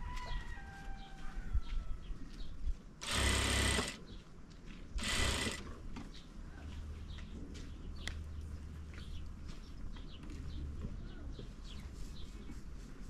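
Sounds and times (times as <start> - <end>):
birds chirping: 1.0 - 12.4
sewing machine running: 3.0 - 4.0, 5.0 - 5.7.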